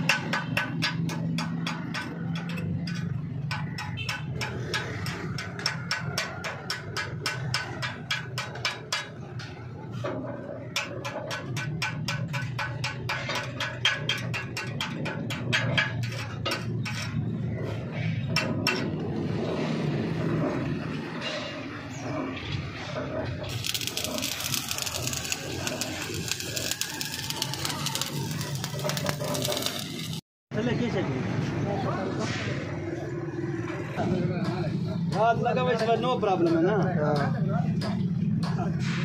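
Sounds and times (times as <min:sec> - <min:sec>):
chipping hammer tapping steel: 0:00.0 - 0:09.3, 0:23.5 - 0:30.1.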